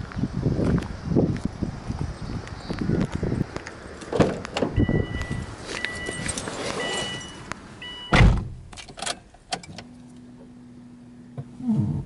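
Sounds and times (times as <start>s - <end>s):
car warning chime beeping: 4.8s - 8.2s
car door shutting thump: 8.1s - 8.6s.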